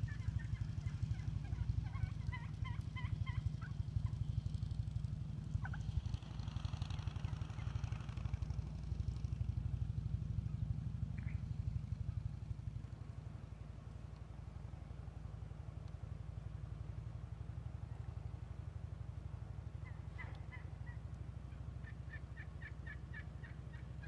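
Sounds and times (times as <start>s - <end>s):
wild turkeys calling: 0.0s - 4.2s, 5.5s - 6.0s, 11.1s - 11.6s, 19.6s - 24.0s.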